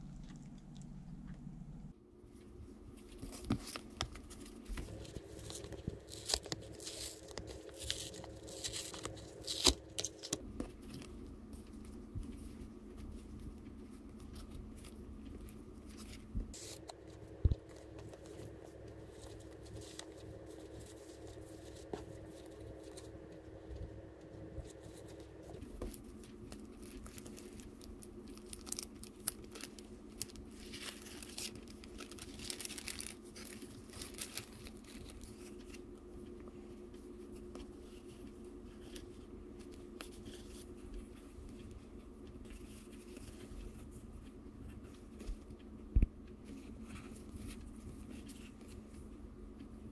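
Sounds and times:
paper rustling and tearing: 3.1 - 13.2, 15.9 - 23.1, 24.6 - 35.7.

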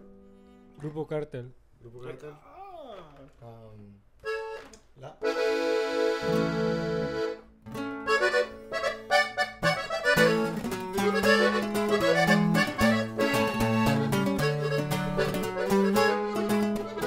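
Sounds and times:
button accordion: 4.2 - 17.0
twelve-string guitar plucking: 5.2 - 17.0.

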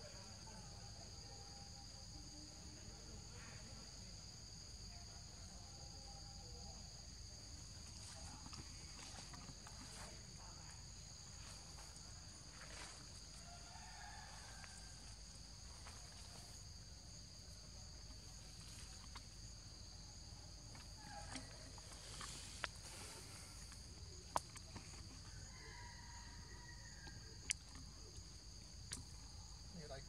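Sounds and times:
insects buzzing: 0.0 - 30.0.

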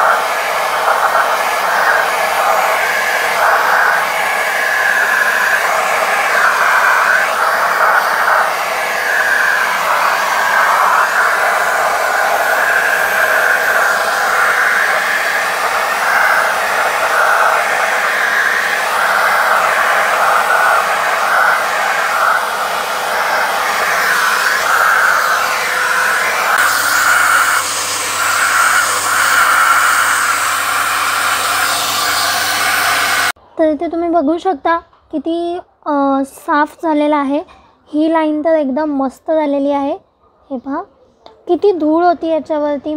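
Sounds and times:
vacuum cleaner sucking: 0.0 - 33.4.

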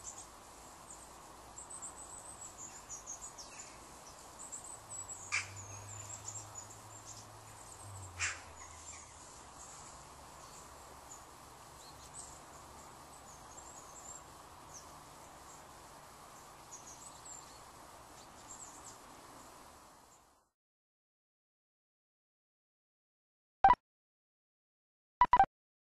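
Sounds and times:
small birds chirping: 0.0 - 20.4
background hiss: 0.0 - 20.5
low hum: 7.6 - 10.8.

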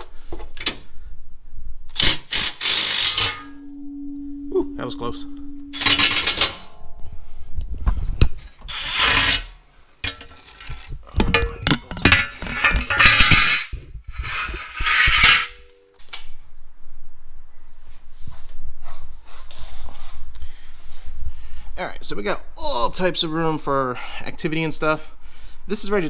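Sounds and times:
metal tools clanking and scraping: 2.9 - 3.6, 5.7 - 6.8, 8.6 - 15.9.

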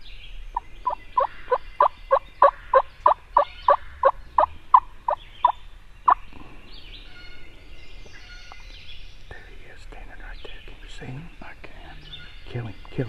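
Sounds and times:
faint songbirds singing: 0.0 - 13.0
turkey yelping: 2.4 - 4.8.

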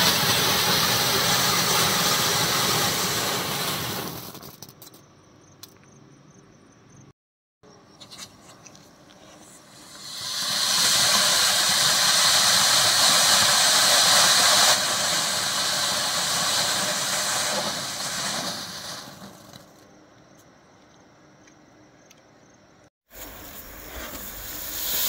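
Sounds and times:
firework fountain hissing: 0.0 - 4.5, 9.3 - 19.8, 23.1 - 25.0.

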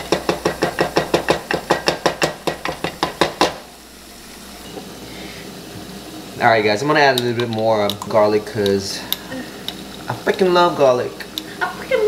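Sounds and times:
cutting board knocking on pot rim: 0.1 - 3.6.

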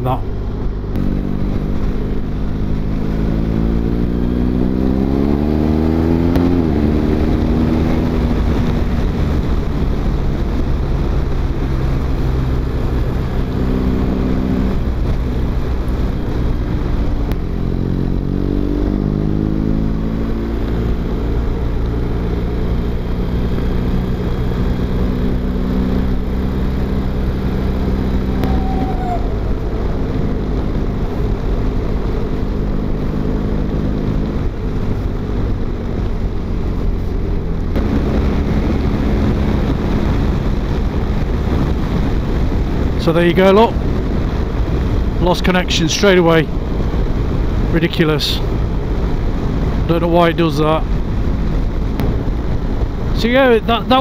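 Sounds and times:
motorcycle engine revving: 0.0 - 54.0
wind and road noise: 0.0 - 54.0.

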